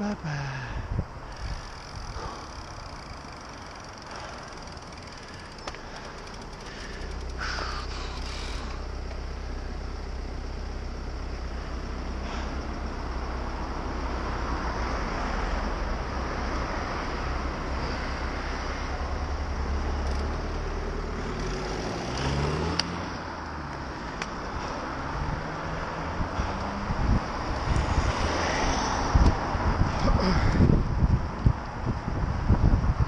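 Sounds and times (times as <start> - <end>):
car engine idling: 0.0 - 22.4
passing traffic: 0.0 - 33.0
engine revving up: 1.4 - 23.3.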